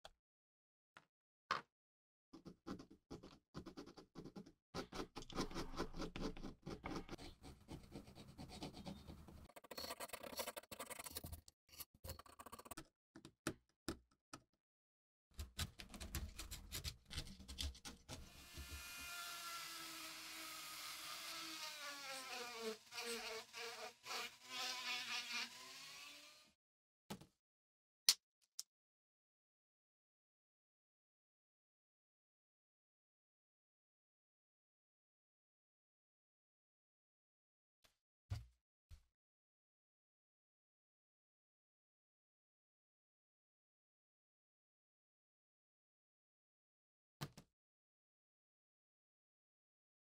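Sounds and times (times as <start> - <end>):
knife scratching leather: 3.8 - 11.9
blade scraping metal fastener: 9.4 - 12.8.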